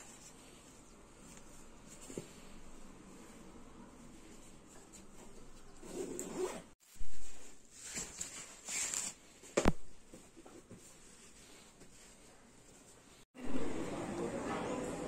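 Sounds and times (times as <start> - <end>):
zipper scraping: 5.8 - 6.8.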